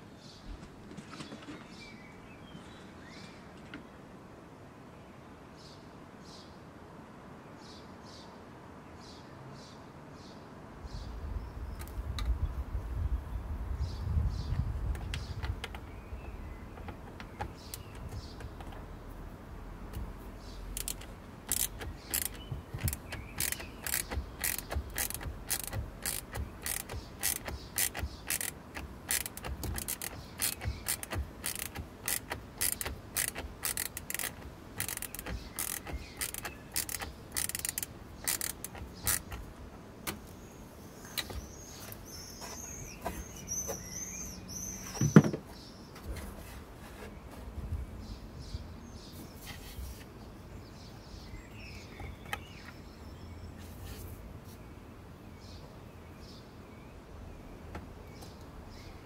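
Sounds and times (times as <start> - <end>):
socket ratchet clicking: 20.7 - 39.5.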